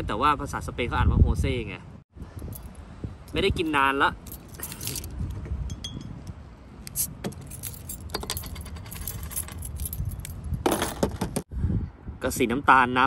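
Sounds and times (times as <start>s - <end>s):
keys jangling: 4.2s - 5.2s, 6.9s - 11.2s.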